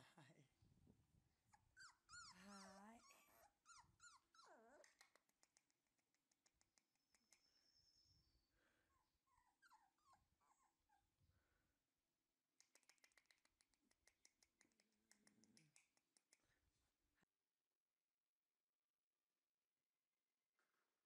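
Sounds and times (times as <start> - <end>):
puppy whimpering: 1.5 - 5.1, 7.2 - 11.0.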